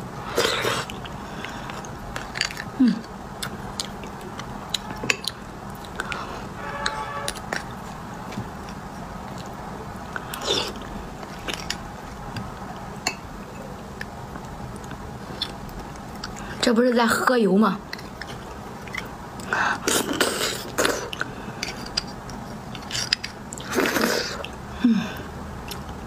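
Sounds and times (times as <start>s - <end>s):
chewing and slurping: 0.2s - 13.1s, 17.8s - 24.6s.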